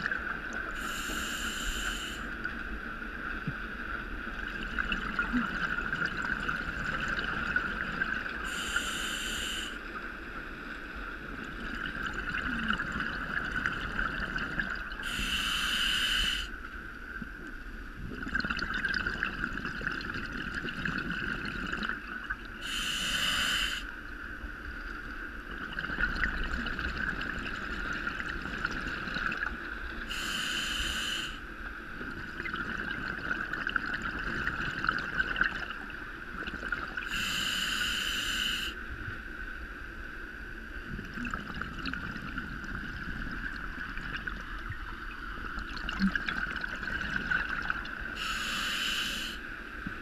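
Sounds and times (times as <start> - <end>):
steady hiss: 0.7 - 2.5, 8.4 - 10.0, 15.0 - 16.7, 22.6 - 24.0, 30.0 - 31.6, 37.1 - 38.9, 48.1 - 49.8.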